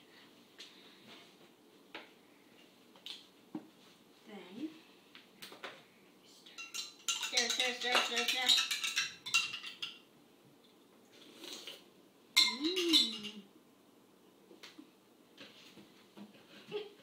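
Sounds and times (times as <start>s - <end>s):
spoons clinking against glasses: 6.6s - 10.0s, 12.4s - 13.4s.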